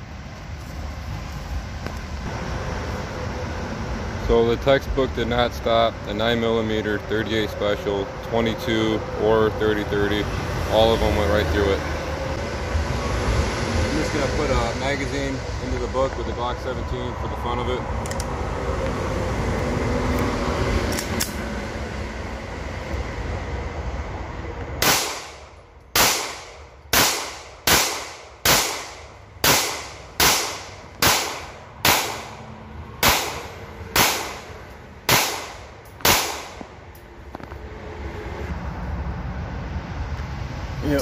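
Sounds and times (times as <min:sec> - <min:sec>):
pistol shots with echo: 0:24.8 - 0:25.4, 0:26.0 - 0:32.4, 0:33.0 - 0:34.5, 0:35.1 - 0:36.6.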